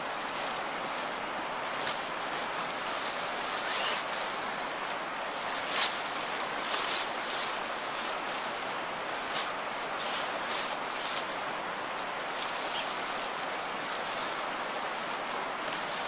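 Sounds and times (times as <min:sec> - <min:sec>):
plastic tarpaulin rustling: 0:00.0 - 0:16.0
steady rushing hiss: 0:00.0 - 0:16.0.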